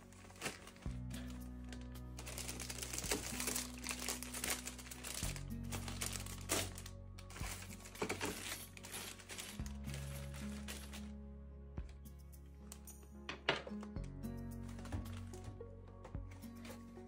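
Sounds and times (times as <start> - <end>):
plastic packaging crinkling: 0.0 - 11.2
soft background music: 0.0 - 17.0.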